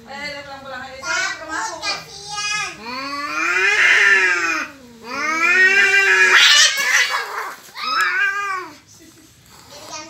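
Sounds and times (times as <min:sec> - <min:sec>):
cats caterwauling: 0:02.8 - 0:08.8.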